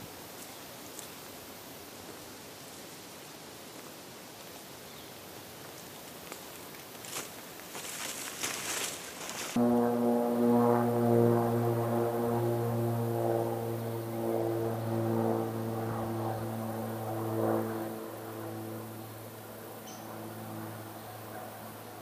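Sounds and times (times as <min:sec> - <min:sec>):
low engine drone: 0:09.6 - 0:22.0.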